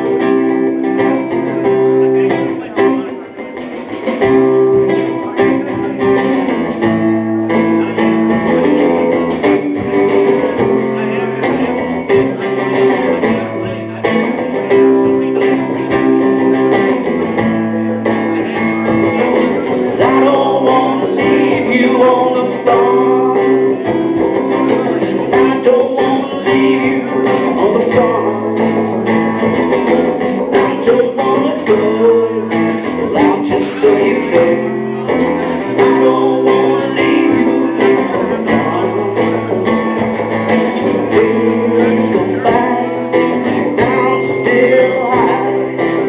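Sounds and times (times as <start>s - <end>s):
live band playing: 0.0s - 46.0s.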